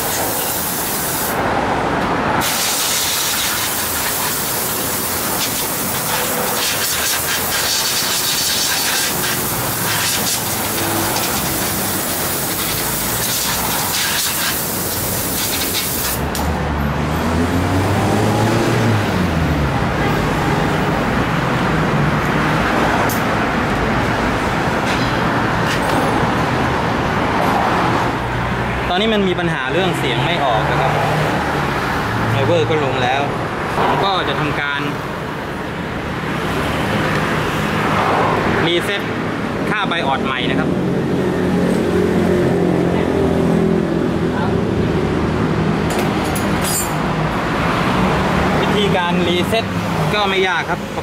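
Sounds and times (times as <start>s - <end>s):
compressed air hissing: 0.0s - 1.4s, 2.4s - 16.3s
traffic noise: 0.0s - 51.0s
vehicle engine passing: 1.2s - 34.7s, 40.2s - 51.0s.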